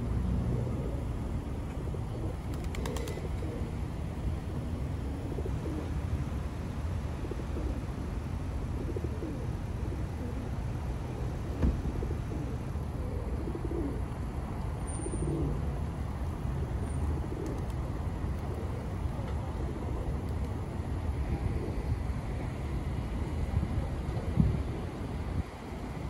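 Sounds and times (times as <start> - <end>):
low rumble of city traffic: 0.0 - 26.0
pigeons cooing: 0.2 - 1.2, 1.8 - 3.8, 5.1 - 6.0, 7.2 - 8.0, 8.7 - 14.2, 14.9 - 15.7, 17.0 - 20.3.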